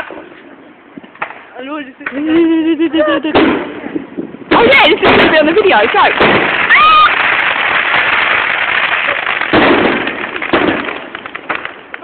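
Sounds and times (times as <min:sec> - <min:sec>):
fireworks bursting: 0:00.0 - 0:12.0
fireworks crackle: 0:00.0 - 0:12.0.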